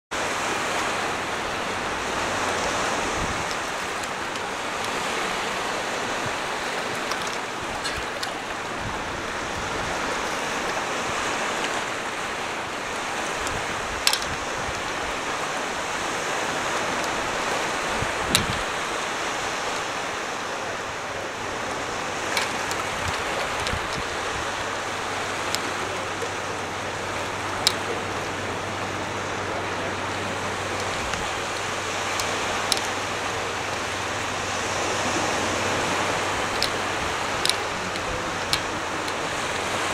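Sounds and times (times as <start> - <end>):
waves washing over rocks: 0.1 - 39.9
sharp clicks: 6.8 - 8.6, 13.3 - 14.9, 18.2 - 18.7, 22.2 - 26.5, 27.1 - 28.4, 30.4 - 33.3, 35.7 - 39.9.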